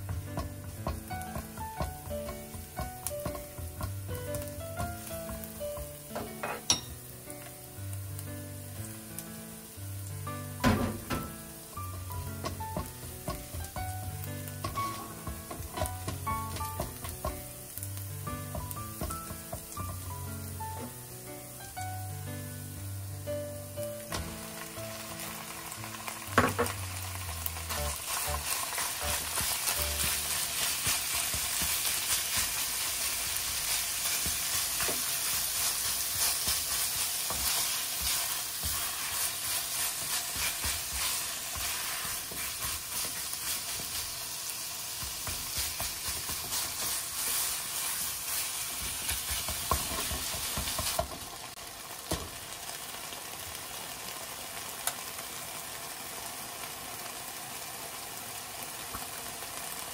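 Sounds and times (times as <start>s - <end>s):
spatula scraping and tapping pan: 0.0s - 7.0s, 12.0s - 13.9s, 14.5s - 17.5s, 27.5s - 44.1s, 45.0s - 51.2s
meat sizzling in a frying pan: 0.0s - 59.9s.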